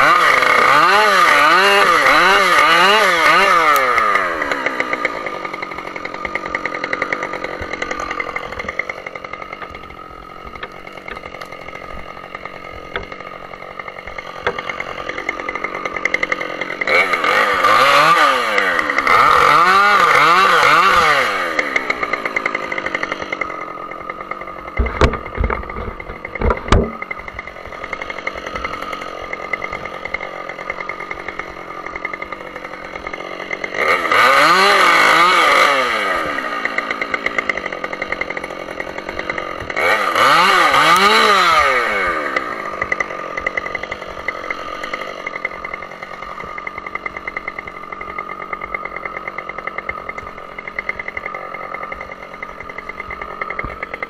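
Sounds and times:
chainsaw idling and revving: 0.0 - 54.0
sharp knocks: 24.8 - 27.2.

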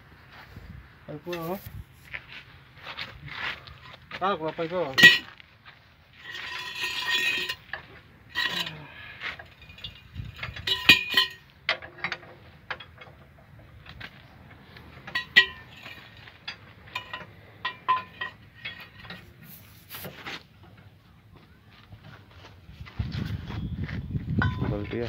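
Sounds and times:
metal tools clinking on steel: 4.9 - 5.3, 6.2 - 13.3, 15.0 - 20.1.

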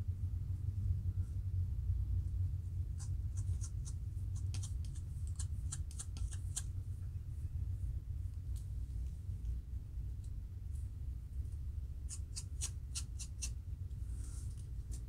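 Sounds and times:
steady low rumble: 0.0 - 15.0
comb scratching scalp: 3.0 - 6.7, 12.1 - 13.6, 14.2 - 15.0.

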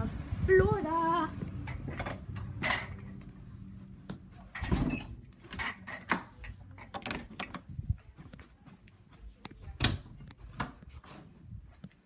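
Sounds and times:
handheld camera knocks and clatter: 5.5 - 8.5.

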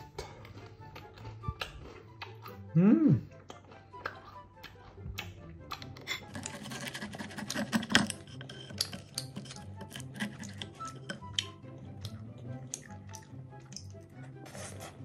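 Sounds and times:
knife and fork scraping plate: 6.2 - 11.3.

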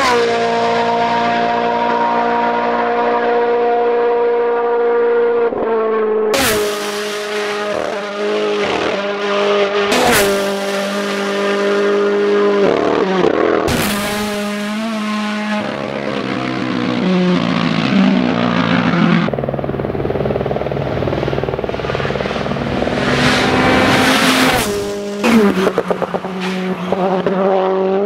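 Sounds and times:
rally car engines revving: 0.0 - 28.0.

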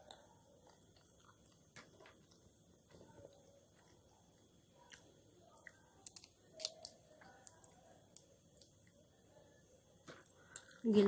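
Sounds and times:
chewing peanuts: 0.0 - 4.0, 4.8 - 9.0
soft clicks of peanut shells: 4.9 - 9.0, 10.1 - 10.9.

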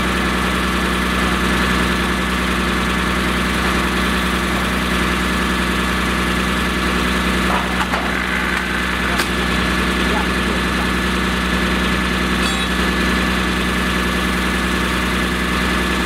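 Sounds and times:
fire engine engine humming: 0.0 - 16.0
steady high whine: 1.8 - 14.1.

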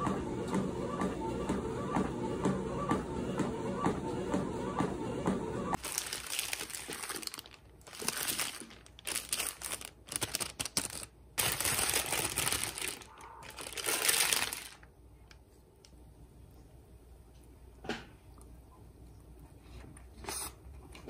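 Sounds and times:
paper wrapper crinkling: 5.8 - 15.0.

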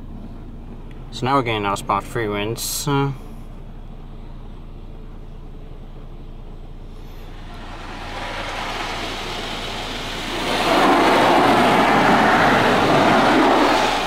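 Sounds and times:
water spray hissing on car: 7.0 - 14.0.

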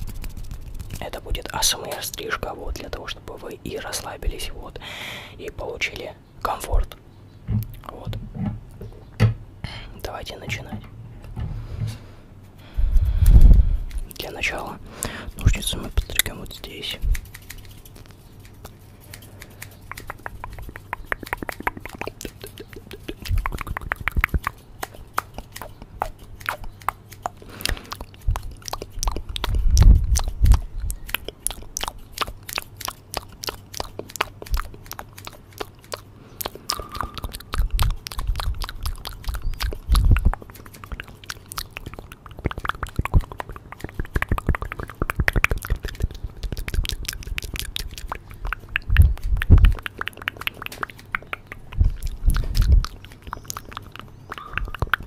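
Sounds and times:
scissors snipping: 17.1 - 23.7.

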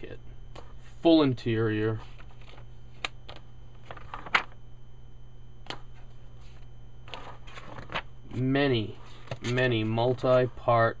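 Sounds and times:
steady low hum: 0.0 - 11.0
paper pages turning: 2.0 - 3.2, 3.8 - 4.6, 5.7 - 8.1.

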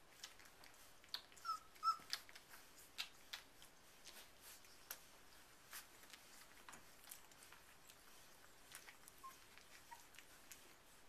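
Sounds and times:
puppy whimpering squeaks: 1.1 - 2.7, 8.6 - 10.6.

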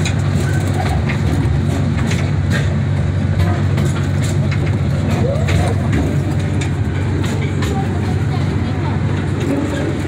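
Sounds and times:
rattles and clicks from rails: 0.0 - 10.0
train engine drone: 0.0 - 10.0.

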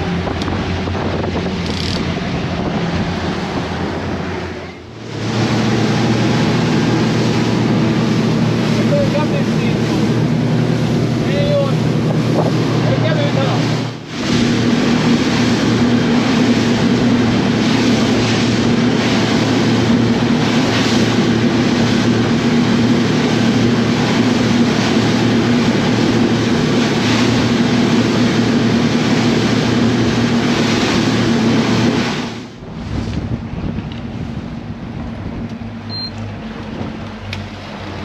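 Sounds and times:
boat wake: 0.0 - 38.0
outboard motors humming: 0.0 - 38.0
wind rushing: 9.7 - 23.7, 25.8 - 35.5.

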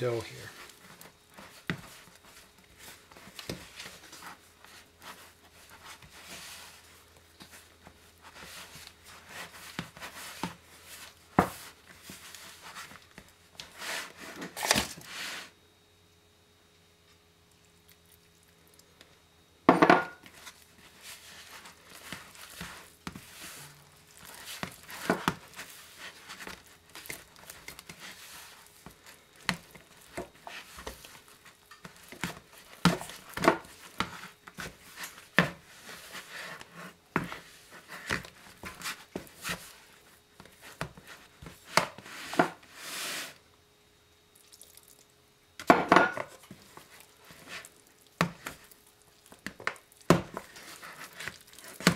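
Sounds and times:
dough squelching: 0.0 - 15.3, 20.2 - 43.2, 46.3 - 51.9.

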